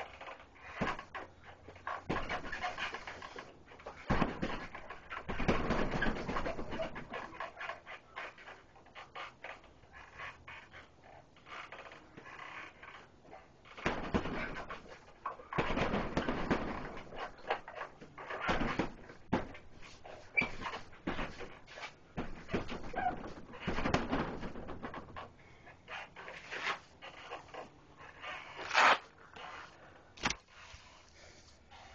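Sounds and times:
punches thudding on heavy bag: 2.1 - 3.0, 4.0 - 7.2, 13.8 - 17.7, 18.4 - 19.7, 22.1 - 24.9.

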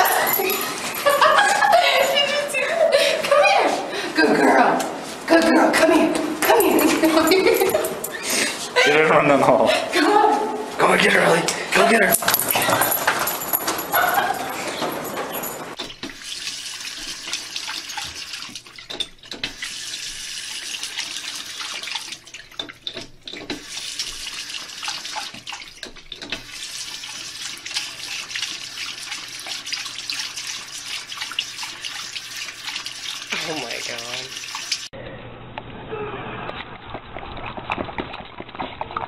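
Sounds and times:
faucet water running: 0.0 - 3.1, 6.5 - 8.4, 15.4 - 35.0.

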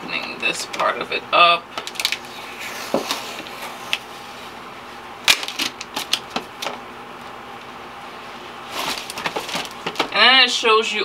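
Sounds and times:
cardboard box and paper rustling: 8.7 - 10.1.

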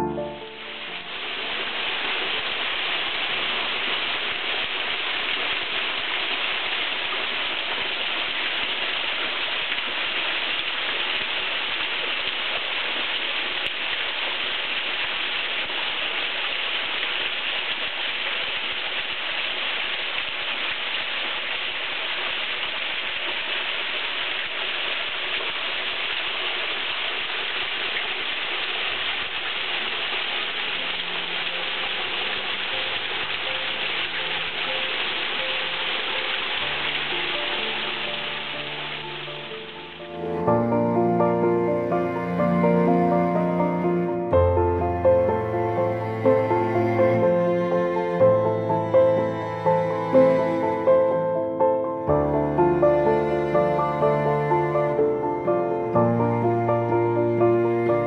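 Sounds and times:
waterfall splashing into pool: 0.2 - 42.4.

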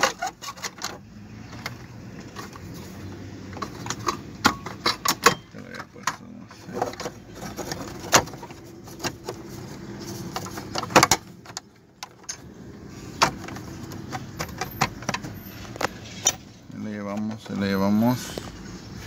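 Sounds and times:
plastic parts clicking and knocking: 0.0 - 12.5, 13.1 - 16.4.

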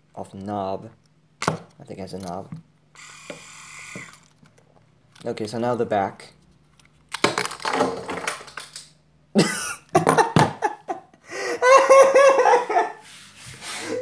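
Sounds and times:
person coughing: 9.4 - 9.9
person laughing: 9.4 - 13.0.

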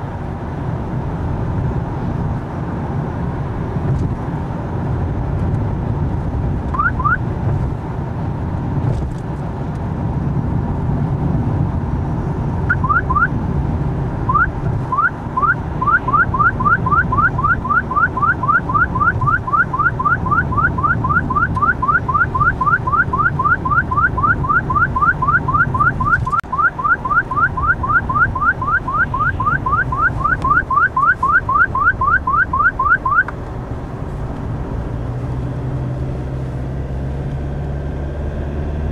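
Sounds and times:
car cabin road noise: 0.0 - 38.9
radar detector chirping: 6.7 - 7.2, 12.6 - 13.3, 14.3 - 33.3.

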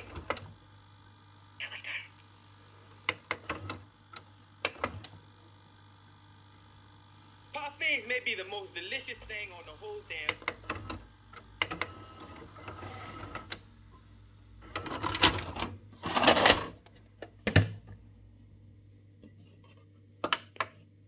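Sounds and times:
tape mechanism motor whirring: 3.0 - 5.3, 10.1 - 13.6.

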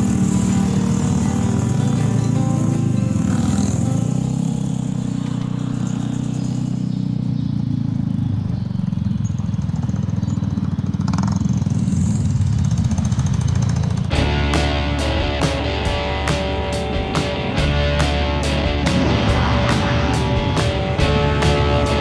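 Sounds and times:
music: 0.0 - 5.9, 14.1 - 22.0
road and wind noise: 0.0 - 22.0
scooter engine running: 0.0 - 22.0.

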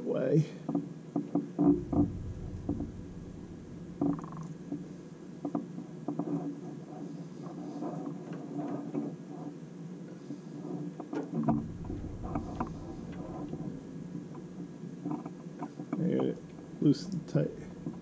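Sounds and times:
low rumble: 1.7 - 5.1, 11.4 - 15.0, 15.8 - 18.0
steady low hum: 1.7 - 5.2, 11.4 - 18.0.

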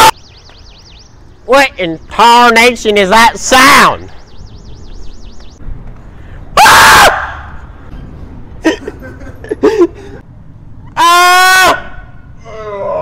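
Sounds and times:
person screaming: 6.6 - 7.4, 11.0 - 13.0.

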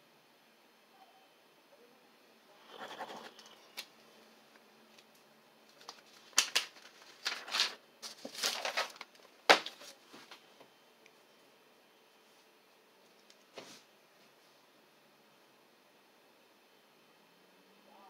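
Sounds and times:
pen scratching on paper: 2.6 - 3.8
notebook page rustling: 5.7 - 10.0.

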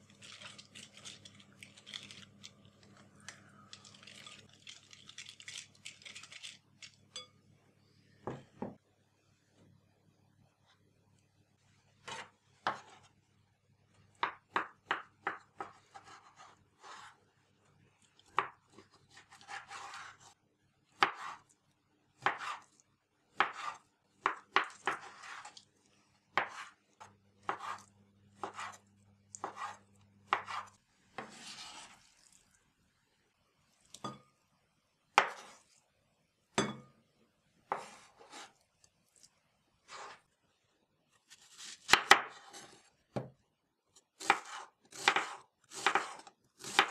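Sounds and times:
knife scraping board: 15.9 - 17.2, 19.3 - 20.4, 24.8 - 25.6, 27.5 - 28.8, 29.4 - 32.0, 37.7 - 38.6, 39.9 - 40.2, 44.2 - 46.9.

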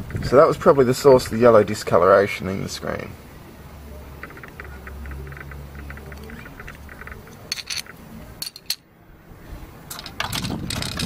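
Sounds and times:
plastic and metal parts clicking: 4.2 - 8.8, 9.9 - 11.0.

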